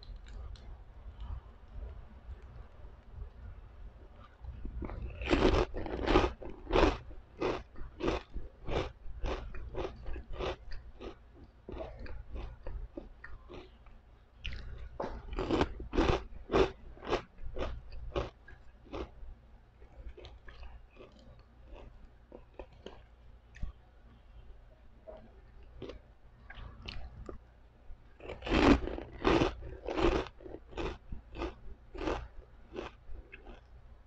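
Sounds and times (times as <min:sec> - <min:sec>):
crunching chews of pork rinds: 0:04.3 - 0:13.8, 0:14.4 - 0:19.1, 0:20.0 - 0:23.7, 0:28.2 - 0:33.7.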